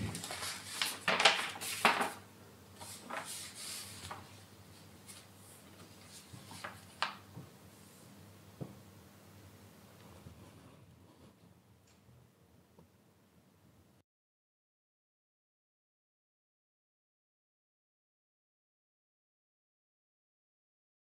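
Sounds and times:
paper rustling and crinkling: 0:00.0 - 0:07.2.

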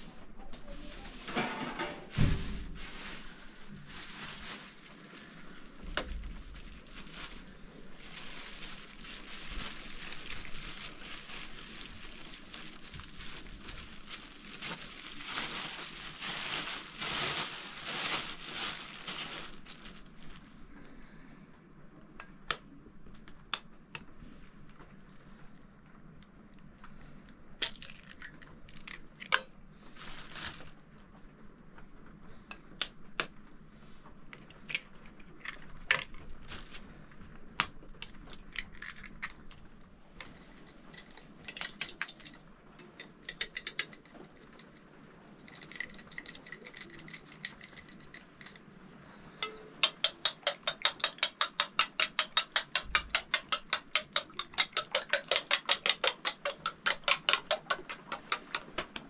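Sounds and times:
rustling crackling noise: 0:00.0 - 0:21.0, 0:23.7 - 0:43.0.

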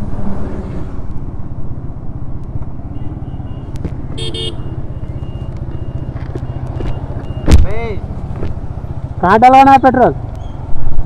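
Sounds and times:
horn toot: 0:03.4 - 0:04.7
motorcycle engine running: 0:04.0 - 0:11.0.

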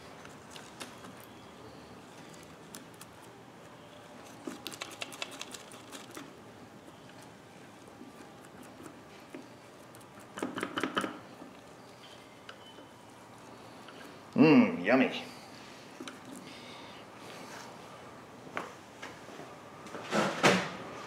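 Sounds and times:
gloved hands clicking and squishing: 0:04.3 - 0:07.3.

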